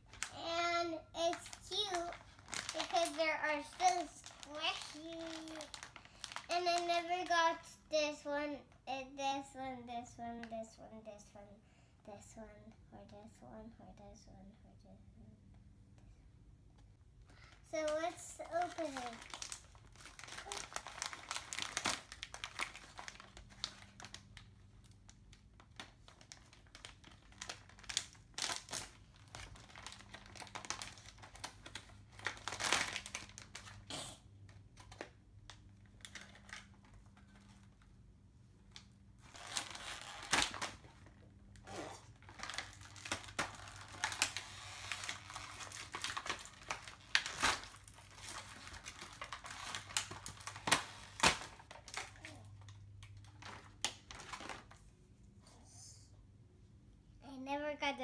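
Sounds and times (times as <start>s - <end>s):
plastic packets crinkling: 0.0s - 7.6s, 17.4s - 33.8s, 34.6s - 37.9s, 38.7s - 41.1s, 42.1s - 54.8s.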